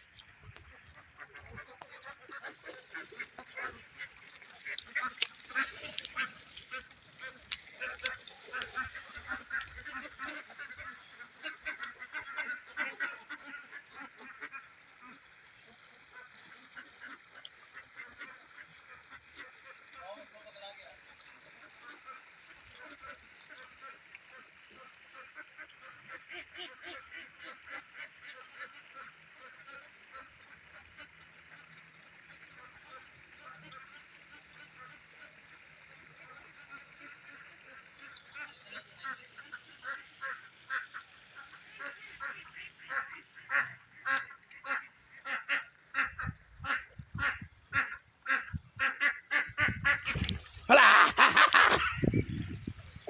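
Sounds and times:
ducks quacking: 0.0 - 53.0.

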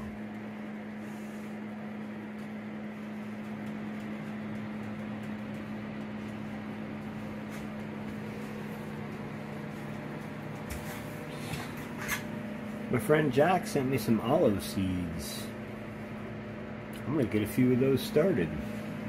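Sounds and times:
fans humming: 0.0 - 19.0.

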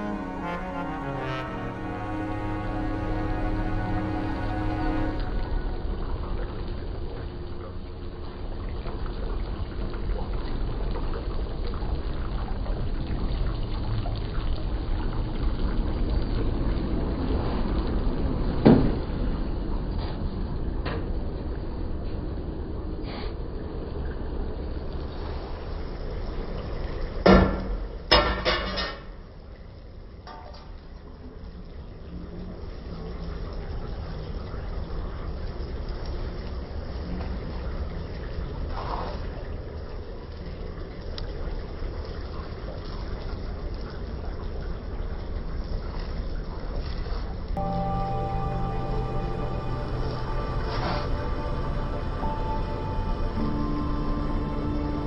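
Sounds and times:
low rumble: 0.0 - 9.2, 47.6 - 55.0.

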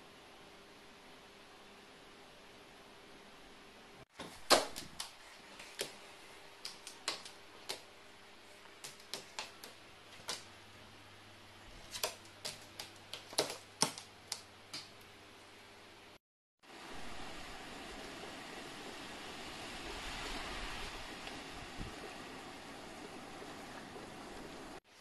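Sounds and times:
room hum: 0.0 - 19.4.

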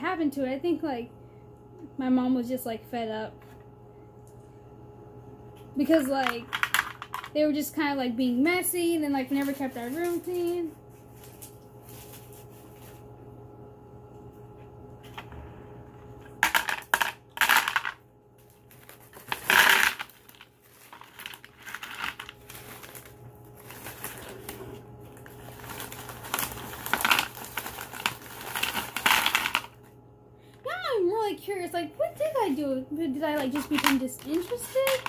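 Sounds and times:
plastic bag crinkling: 9.2 - 13.0, 17.4 - 29.9, 33.3 - 35.0
stones clattering into plastic basin: 19.2 - 20.1.

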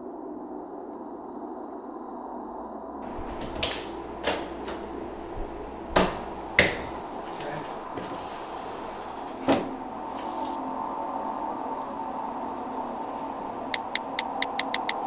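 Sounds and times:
sharp clicks and knocks: 3.0 - 8.1, 13.8 - 15.0
steady low hum: 3.0 - 15.0.

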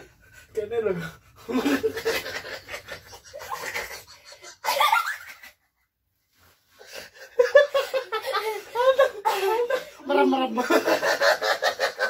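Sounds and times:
people laughing and giggling: 1.4 - 5.8, 6.8 - 12.0.

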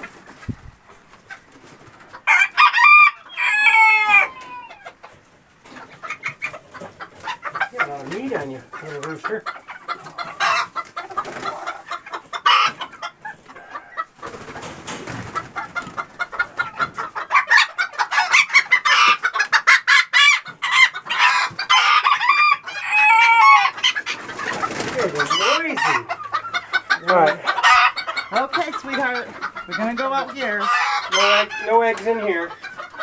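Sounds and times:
chickens clucking and squawking: 0.0 - 33.0
rustling and clattering: 14.2 - 17.0.

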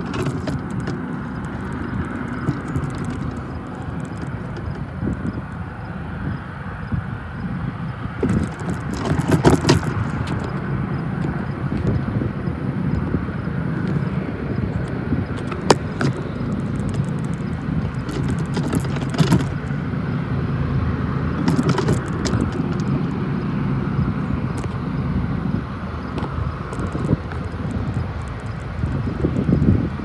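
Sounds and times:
sharp clicks: 0.0 - 5.6, 14.8 - 19.8, 26.1 - 29.8
locomotive engine rumble: 0.0 - 30.0.

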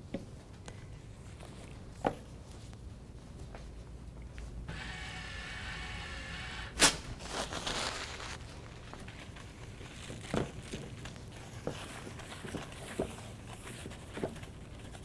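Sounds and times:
paper towel dispenser motor whirring: 4.7 - 7.3
paper towel tearing snap: 6.6 - 8.5
paper crinkling: 6.9 - 15.0.

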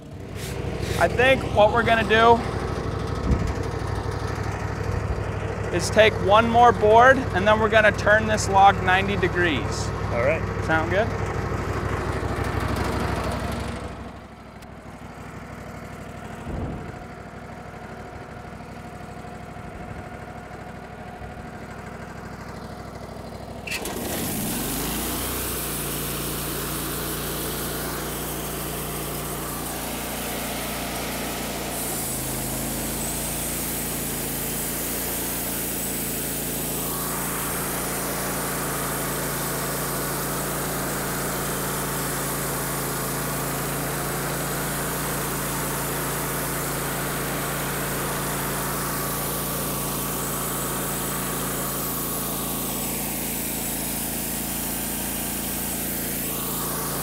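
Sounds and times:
sawmill gas engine: 0.0 - 57.0
band blade sawing log: 0.2 - 2.4, 23.7 - 57.0
hiss: 0.3 - 1.1, 23.7 - 30.1, 30.9 - 57.0.

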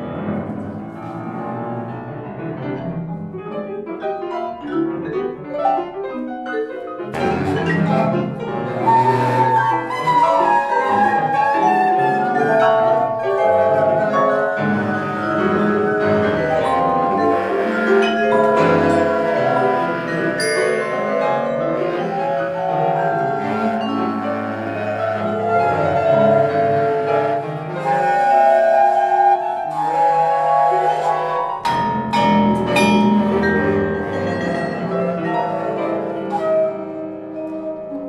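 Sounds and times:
live chamber music ensemble: 0.0 - 38.0
mallet-struck notes: 11.1 - 26.1, 31.2 - 36.6.

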